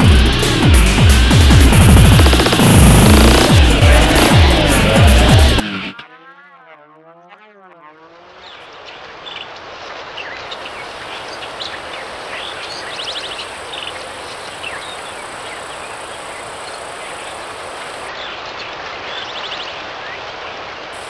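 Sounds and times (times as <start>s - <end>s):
steady rushing background noise: 0.0s - 5.9s
birds chirping and trilling: 10.2s - 18.0s.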